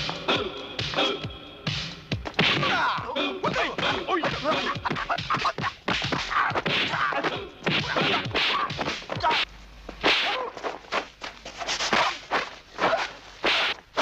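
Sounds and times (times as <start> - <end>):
fighters grunting and shouting: 0.1 - 1.3, 2.4 - 9.5
punch and kick impacts: 2.2 - 10.6, 11.9 - 14.0.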